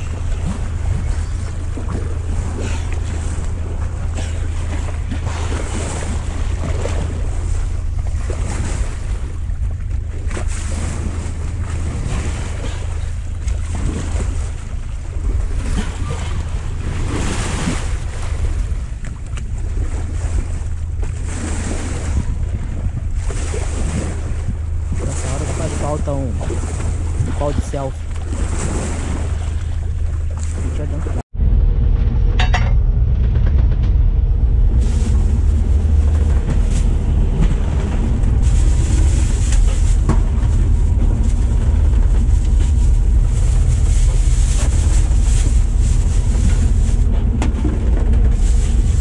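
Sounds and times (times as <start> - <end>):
boat motor humming: 0.0 - 49.0
water splashing past hull: 0.0 - 49.0
wind buffeting microphone: 0.0 - 49.0.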